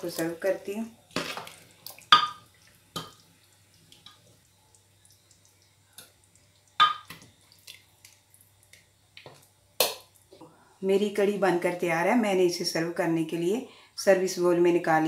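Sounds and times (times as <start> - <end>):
liquid dripping and splashing: 1.0 - 10.3.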